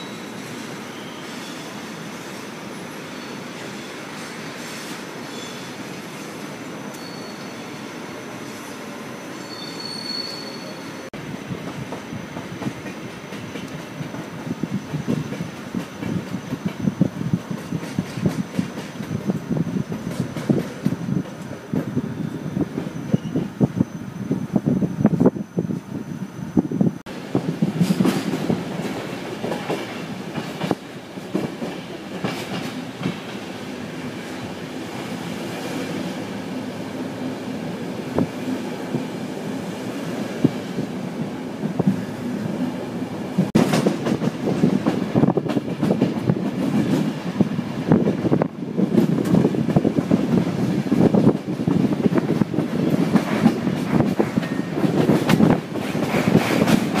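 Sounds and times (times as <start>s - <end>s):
train rumble: 11.0s - 57.0s.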